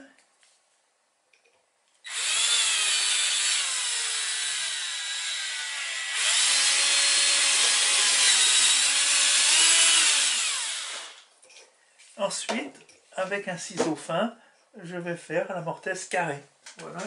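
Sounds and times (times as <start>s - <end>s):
cordless drill boring into wood: 2.1s - 11.3s.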